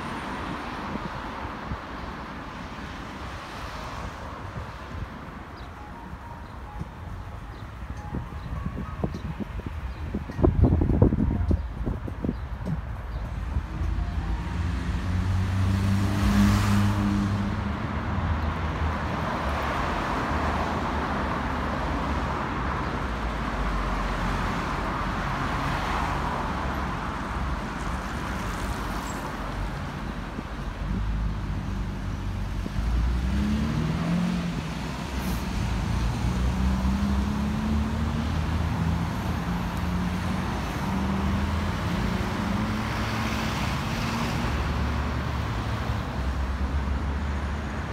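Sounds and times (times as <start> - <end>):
road traffic rumble: 0.0 - 47.9
engines speeding up: 13.5 - 18.4, 32.8 - 45.8.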